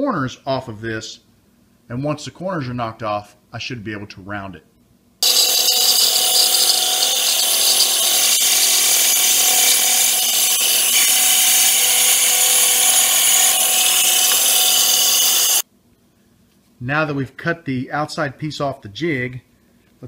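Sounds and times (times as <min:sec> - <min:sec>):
bandsaw cutting a board: 0:05.2 - 0:15.6.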